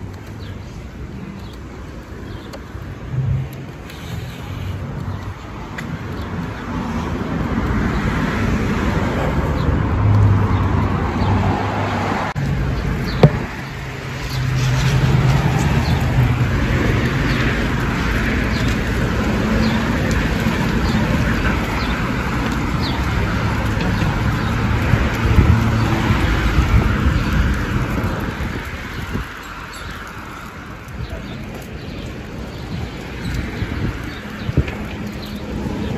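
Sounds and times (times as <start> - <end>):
cars driving past: 2.4 - 28.3.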